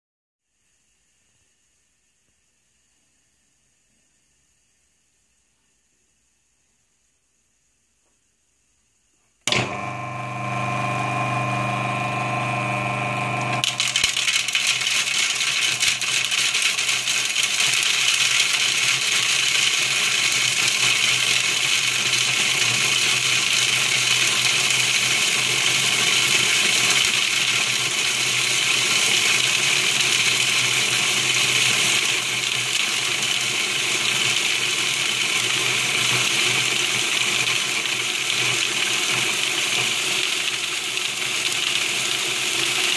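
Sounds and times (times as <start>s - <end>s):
food processor grinding: 9.5s - 42.9s.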